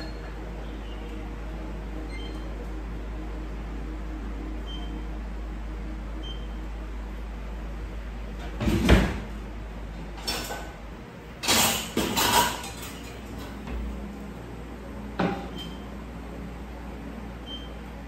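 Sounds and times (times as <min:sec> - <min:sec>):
low steady hum: 0:00.0 - 0:18.0
dishes and utensils clattering: 0:10.2 - 0:10.8, 0:11.4 - 0:13.6.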